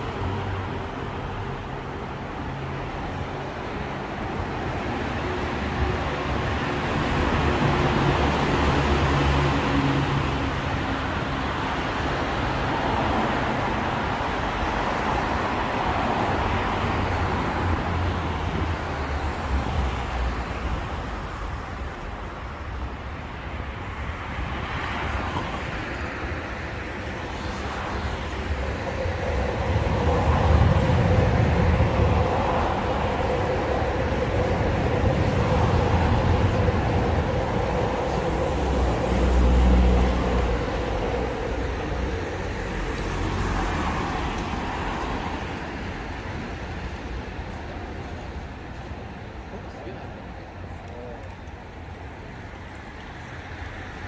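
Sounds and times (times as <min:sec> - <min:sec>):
road traffic passing: 0:00.0 - 0:54.0.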